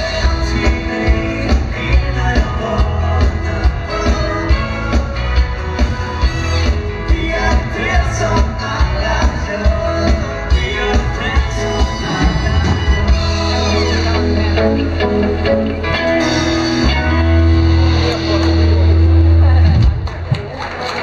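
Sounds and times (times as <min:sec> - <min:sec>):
drum kit steady beat: 0:00.0 - 0:15.2
electric guitar: 0:00.0 - 0:20.4
bass guitar: 0:00.0 - 0:20.5
keyboards: 0:00.0 - 0:21.0.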